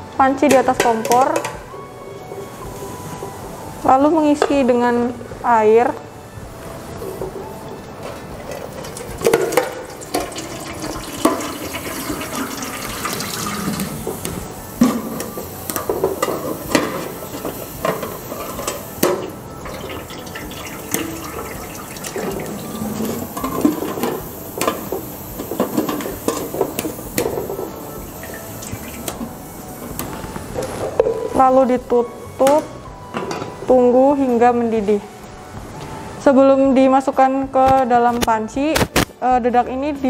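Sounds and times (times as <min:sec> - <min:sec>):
water pouring into metal pot: 0:08.7 - 0:14.1, 0:17.1 - 0:29.2.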